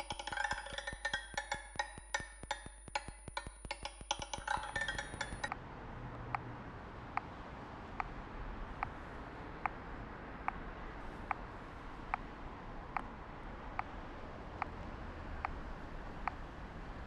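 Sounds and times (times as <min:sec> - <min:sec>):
wood-block percussion: 0:00.0 - 0:05.5.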